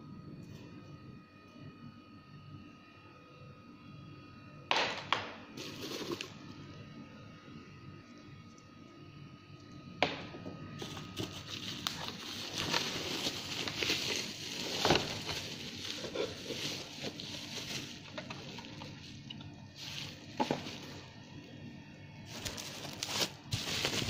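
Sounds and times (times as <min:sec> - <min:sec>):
bubble wrap rustling and crinkling: 0:05.6 - 0:06.4, 0:10.8 - 0:21.2, 0:22.2 - 0:24.0.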